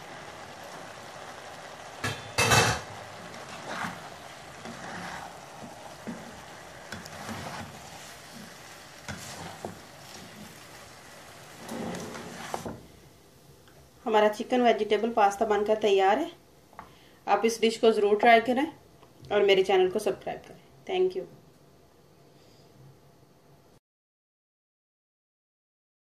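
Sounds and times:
faint steady sizzle: 0.0 - 23.8
spatula scraping and knocking pan: 1.1 - 12.9.

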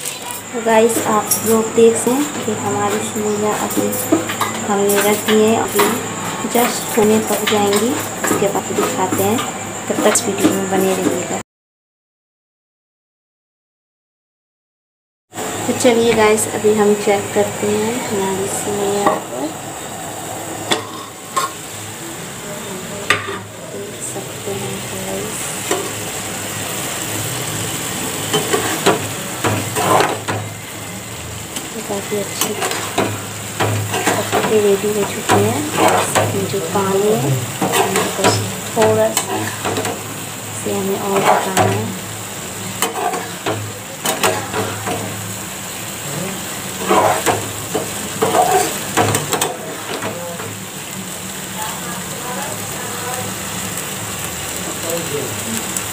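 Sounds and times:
bubbling sizzle in a pan: 0.0 - 11.4, 15.3 - 55.9
spatula scraping pan: 20.6 - 21.8, 23.0 - 23.5, 27.8 - 30.6, 31.6 - 45.3, 46.4 - 50.2.

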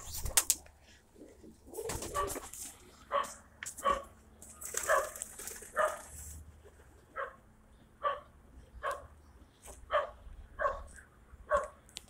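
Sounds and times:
dog barking: 3.1 - 4.2, 4.8 - 6.1, 7.2 - 7.4, 8.0 - 9.1, 9.9 - 10.9, 11.5 - 11.8.

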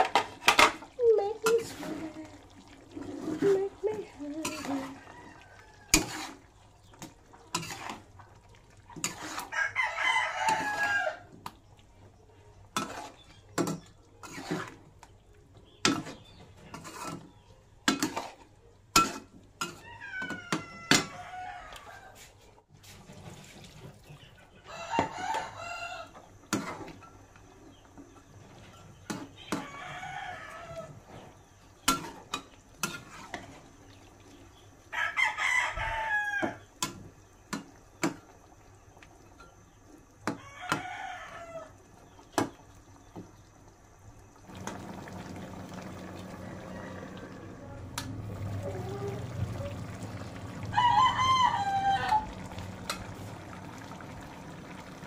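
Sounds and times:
utensil scraping metal wok: 0.0 - 8.1, 8.8 - 11.0, 12.7 - 14.9, 15.9 - 19.8, 26.5 - 27.1, 31.1 - 33.6
rooster crowing: 4.8 - 6.3, 9.3 - 11.3, 19.7 - 22.3, 24.6 - 26.3, 29.4 - 31.0, 34.9 - 36.6, 40.3 - 41.8, 44.6 - 55.0.

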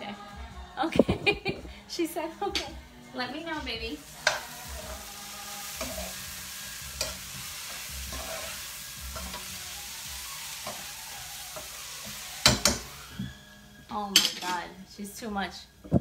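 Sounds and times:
beans sizzling in a pan: 3.4 - 15.9.

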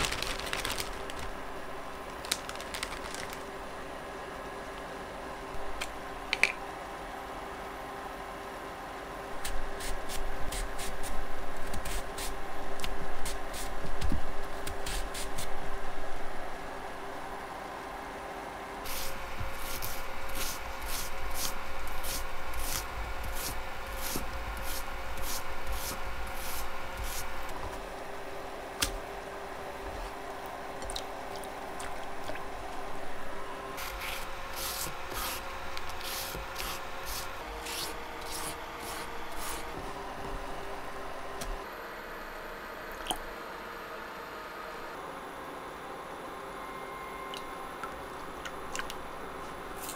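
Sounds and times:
shredder comb rasping down green onion: 18.9 - 27.5, 33.8 - 39.8.

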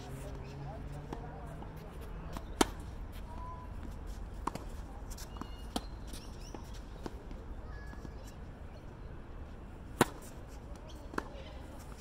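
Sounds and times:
tennis ball impacts: 1.1 - 3.0, 9.9 - 11.6.

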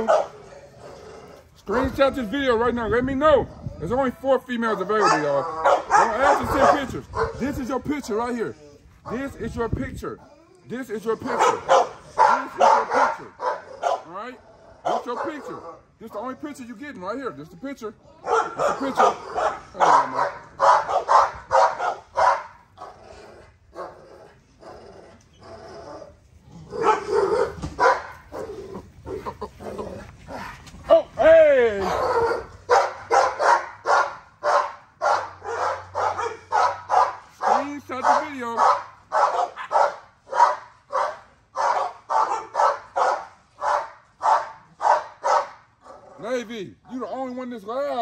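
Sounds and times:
dog barking: 0.0 - 0.4, 5.0 - 7.4, 11.2 - 14.1, 14.8 - 15.6, 18.2 - 22.9, 26.8 - 28.5, 31.9 - 46.2.

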